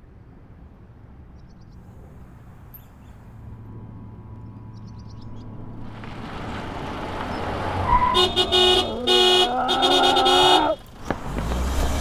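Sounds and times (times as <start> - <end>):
vehicle noise: 0.0 - 12.0
car horn honking: 7.8 - 10.9.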